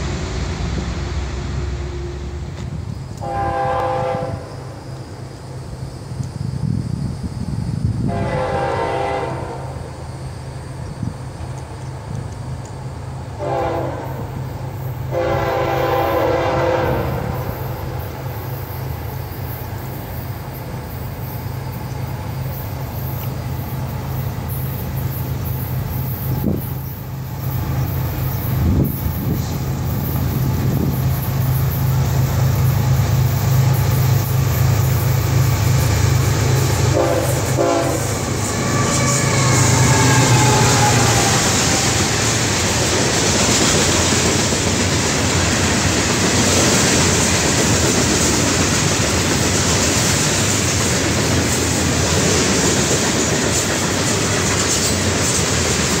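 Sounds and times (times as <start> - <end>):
train rumble: 0.0 - 56.0
train horn blasts: 3.2 - 4.8, 8.0 - 9.9, 13.4 - 14.4, 15.1 - 17.9, 36.5 - 42.3.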